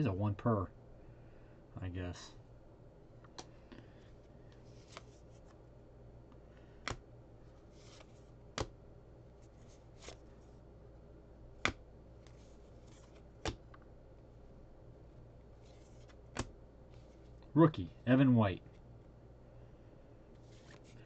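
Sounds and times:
cards sliding: 0:04.5 - 0:05.6, 0:07.6 - 0:08.7, 0:09.4 - 0:10.4, 0:11.6 - 0:13.8, 0:15.6 - 0:17.3, 0:20.4 - 0:21.0
trading cards snapping: 0:11.6 - 0:13.8, 0:16.0 - 0:16.6.

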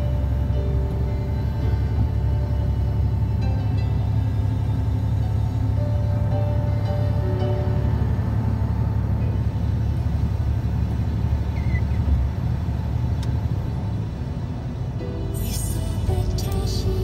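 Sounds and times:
music: 0:00.0 - 0:09.6, 0:14.9 - 0:17.0
truck engine and tyres rumbling: 0:00.0 - 0:17.0.

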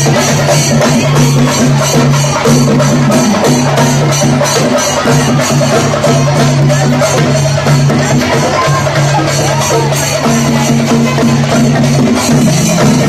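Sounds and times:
cymbals clashing: 0:00.0 - 0:13.0
drums beaten fast with sticks: 0:00.0 - 0:13.0.

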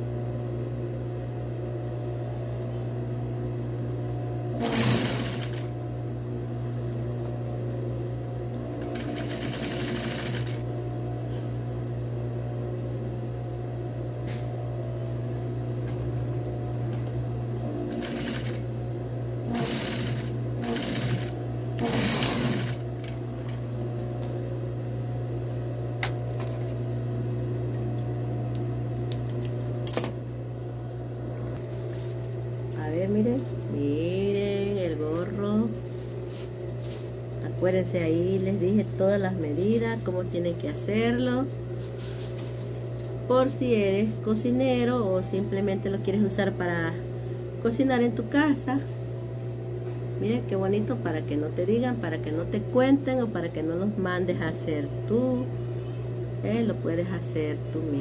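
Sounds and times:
motor hum: 0:00.0 - 0:58.0
sewing machine stitching: 0:04.6 - 0:05.7, 0:08.8 - 0:10.6, 0:17.9 - 0:18.6, 0:19.5 - 0:22.8.

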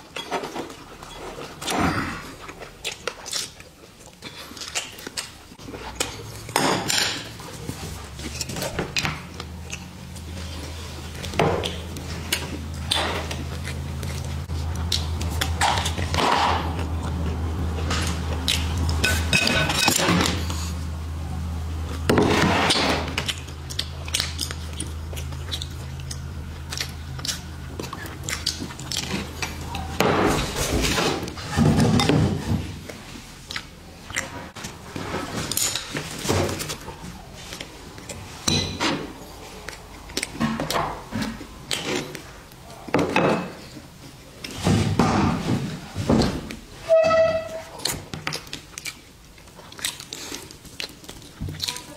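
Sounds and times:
dishes and utensils clinking: 0:18.9 - 0:20.4, 0:29.8 - 0:32.6, 0:38.4 - 0:39.1.

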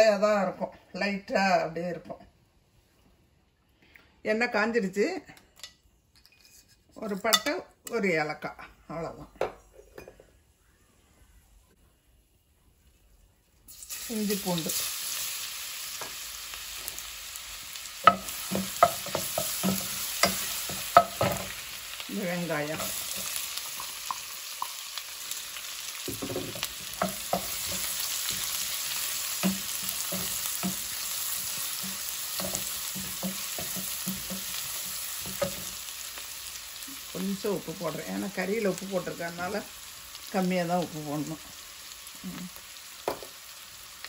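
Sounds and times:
food sizzling in hot oil: 0:13.7 - 0:44.0
wooden spoon tapping and scraping: 0:18.0 - 0:21.6, 0:26.1 - 0:35.9.

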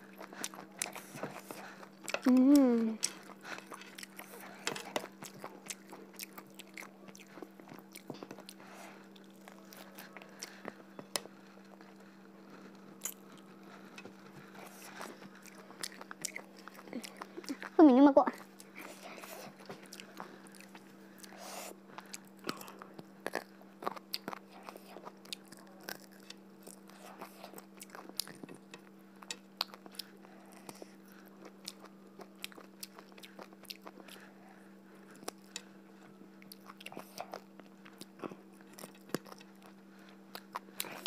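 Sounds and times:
steady low hum: 0:00.0 - 0:41.0
wet chewing and smacking: 0:00.0 - 0:41.0.

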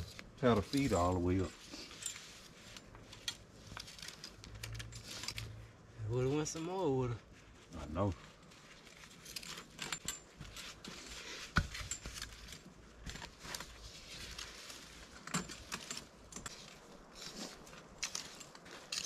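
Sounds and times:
dirt scraping: 0:00.0 - 0:02.9.

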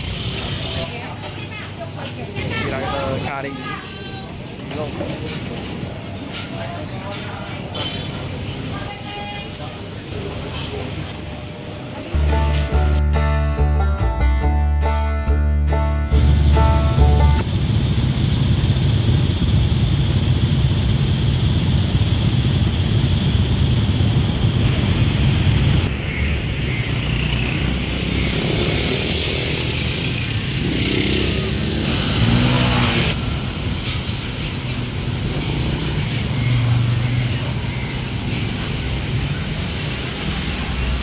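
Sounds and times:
low traffic rumble: 0:16.1 - 0:41.0
car engines passing: 0:24.4 - 0:41.0.

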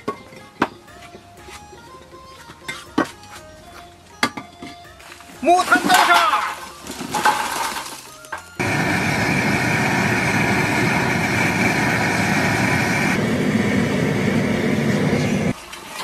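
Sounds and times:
gas blowtorch hissing: 0:08.6 - 0:15.6.

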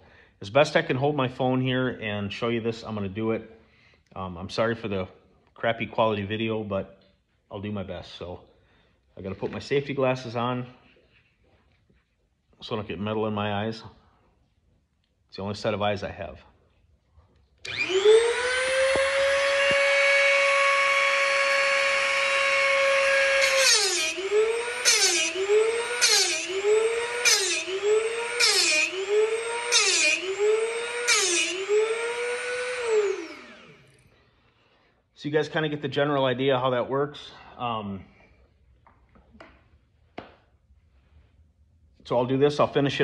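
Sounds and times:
rotary tool whining: 0:17.6 - 0:34.0.

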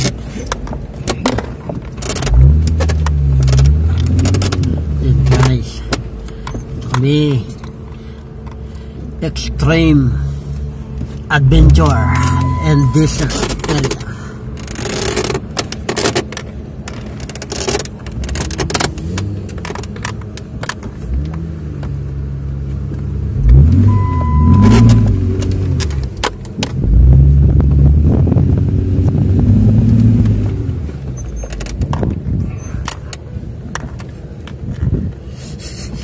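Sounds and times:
car engine revving: 0:00.0 - 0:07.7, 0:09.3 - 0:33.0
vehicle rattling and clicking: 0:00.0 - 0:36.0
high beep: 0:11.6 - 0:13.3, 0:23.8 - 0:25.2.

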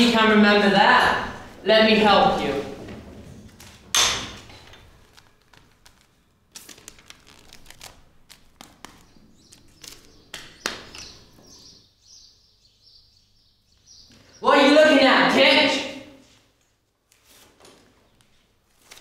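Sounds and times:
paper rustling: 0:04.6 - 0:10.2, 0:16.3 - 0:19.0.

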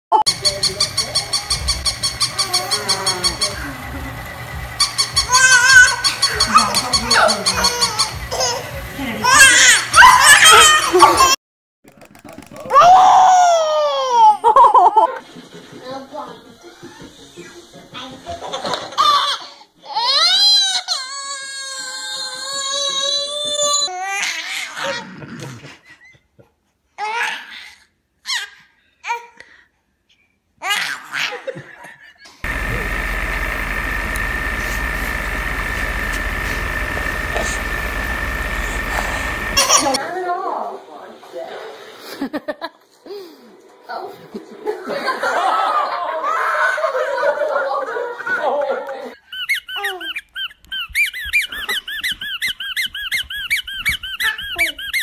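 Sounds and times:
baby laughing squeals: 0:05.2 - 0:11.4, 0:49.2 - 0:55.0.

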